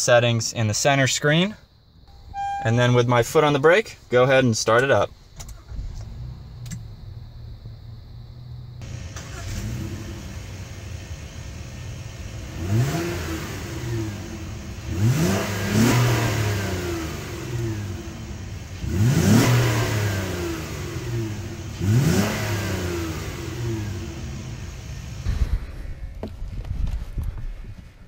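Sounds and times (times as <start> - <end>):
car engine revving: 5.4 - 26.0.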